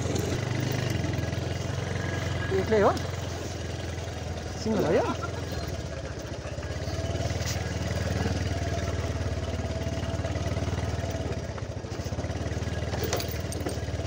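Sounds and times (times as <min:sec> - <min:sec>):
motorcycle engine at low revs: 0:00.0 - 0:14.0.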